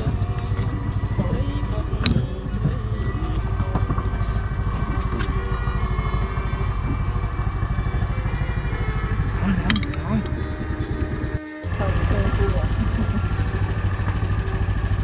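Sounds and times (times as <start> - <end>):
boat engine running: 0.0 - 15.0.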